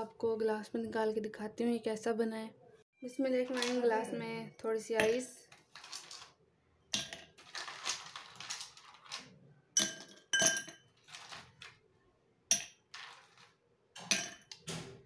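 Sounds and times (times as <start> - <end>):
ice cubes clinking in glass: 5.7 - 6.3, 7.0 - 11.8, 12.5 - 14.6.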